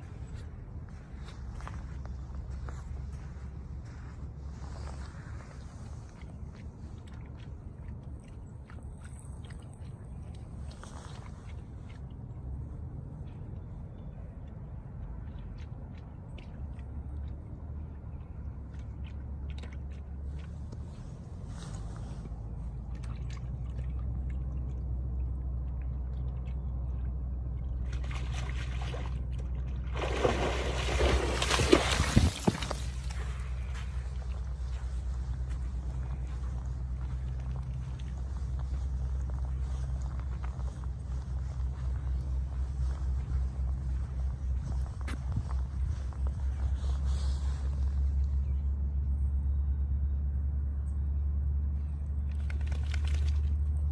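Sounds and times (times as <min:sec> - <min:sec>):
steady low rumble: 0:00.0 - 0:53.9
dog splashing through water: 0:27.8 - 0:34.4, 0:52.3 - 0:53.8
wind buffeting microphone: 0:29.9 - 0:47.9.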